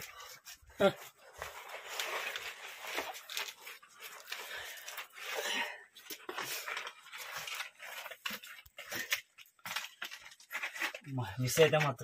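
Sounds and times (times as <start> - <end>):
person breathing hard: 4.3 - 6.0.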